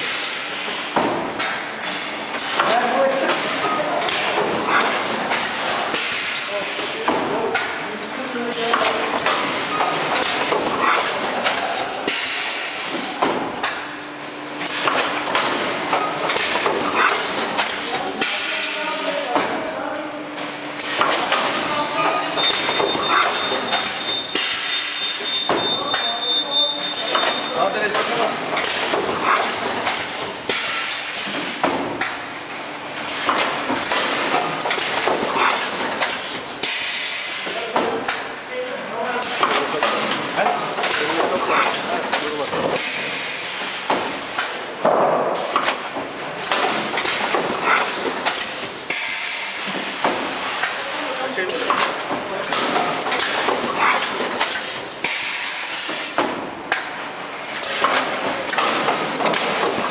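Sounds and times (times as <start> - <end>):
machine metallic clunks: 20.8 - 26.2
pneumatic cylinders hissing: 52.4 - 56.2.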